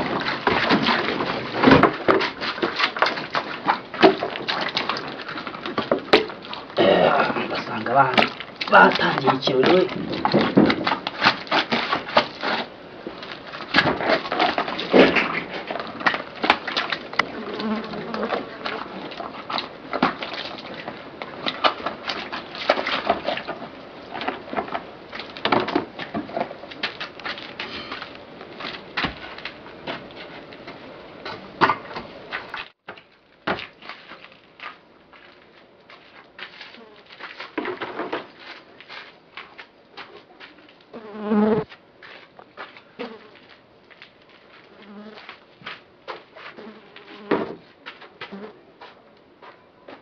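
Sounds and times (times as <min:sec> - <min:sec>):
water splashing and wet rubbing: 0:02.3 - 0:25.4
insect-like buzz: 0:40.9 - 0:41.7.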